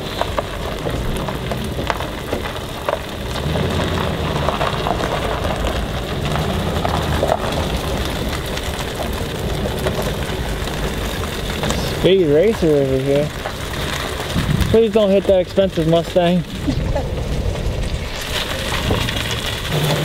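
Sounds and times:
low engine hum: 0.0 - 14.8
small clicks and rattles: 0.0 - 17.4
tyre and road noise: 0.0 - 20.0.

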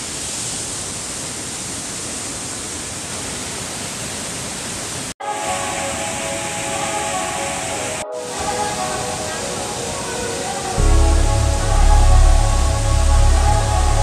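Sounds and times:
waterfall and stream rushing: 0.0 - 14.0
steady held tones: 5.4 - 14.0.

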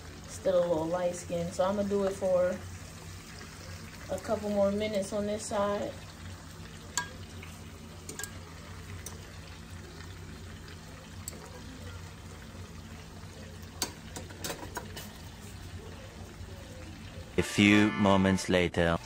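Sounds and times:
chicken sizzling in oil: 0.0 - 18.0
metal tongs clicking on pan: 6.9 - 7.2, 8.0 - 8.4, 11.2 - 11.5, 13.8 - 15.1.

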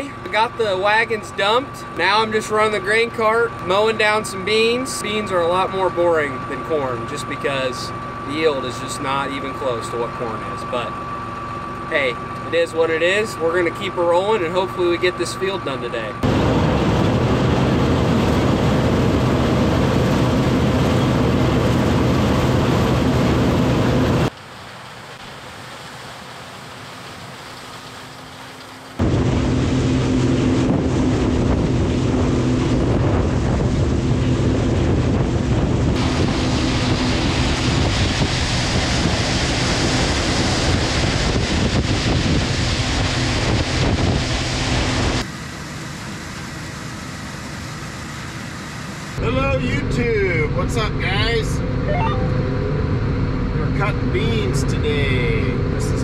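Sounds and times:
harvester engines droning: 0.0 - 42.2, 44.3 - 56.0
heavy rumbling: 16.2 - 24.3, 29.0 - 45.2.

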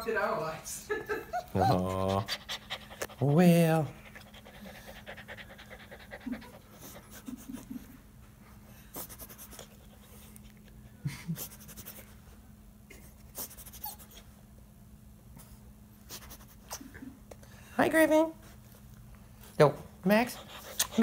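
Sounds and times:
steady low hum: 0.0 - 21.0
dog panting softly: 1.6 - 12.3, 18.4 - 21.0.

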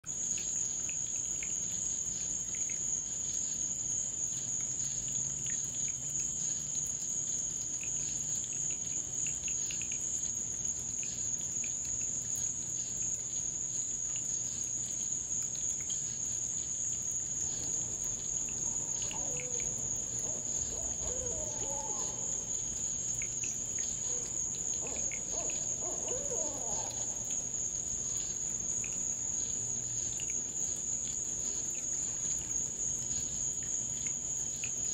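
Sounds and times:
night insects chirring: 0.1 - 34.9
faint warbling calls: 17.4 - 28.9.

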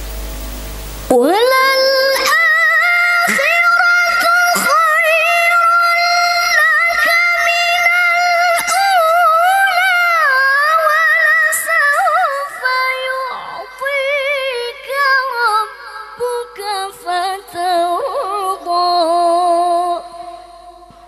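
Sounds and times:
woman reciting melodically: 1.1 - 21.0.

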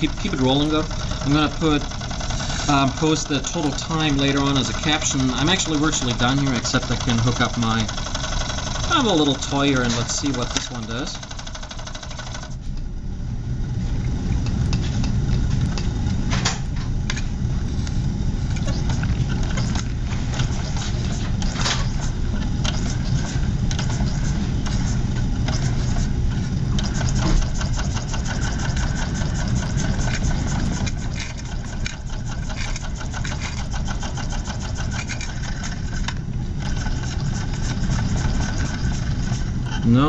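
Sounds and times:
model steam engine running: 0.0 - 12.6, 26.8 - 40.0.

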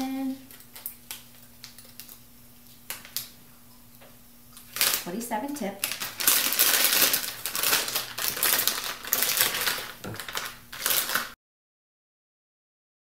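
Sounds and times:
plastic piping bag crinkling: 4.6 - 11.4.

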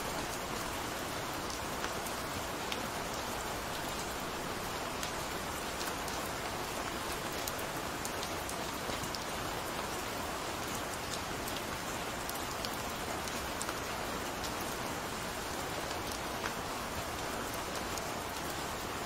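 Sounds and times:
steady rain hiss: 0.0 - 19.0
small raindrop ticks: 1.4 - 14.8, 15.4 - 19.0.

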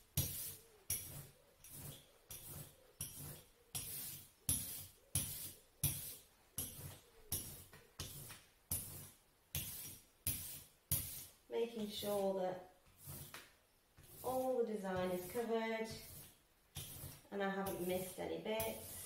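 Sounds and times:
brayer rolling sticky ink: 0.0 - 12.2, 12.8 - 19.0.

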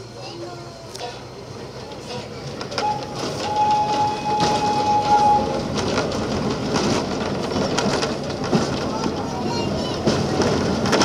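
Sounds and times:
train rumbling on rails: 0.0 - 11.0
train whistle: 2.8 - 5.6.

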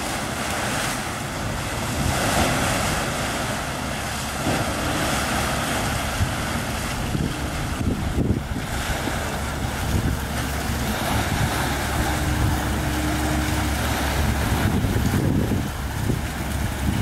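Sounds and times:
boat diesel engine droning: 0.0 - 17.0
water washing along hull: 0.0 - 17.0
wind on microphone: 4.4 - 17.0.

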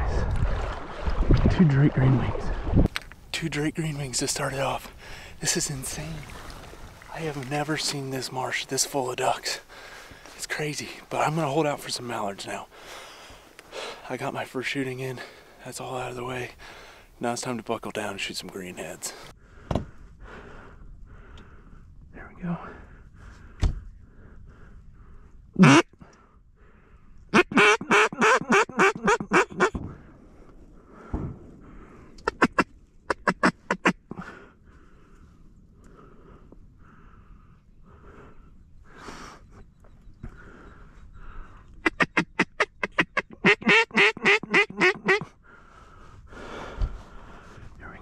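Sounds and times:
rustle: 4.0 - 11.2
duck call quacks: 25.6 - 25.9, 27.3 - 29.8, 32.2 - 34.0, 41.8 - 45.3
low thump: 31.1 - 31.5.

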